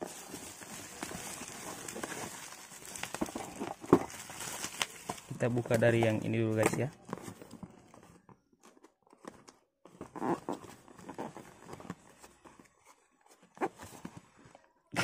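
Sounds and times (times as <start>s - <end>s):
cardboard box scraping and rustling: 0.0s - 4.5s.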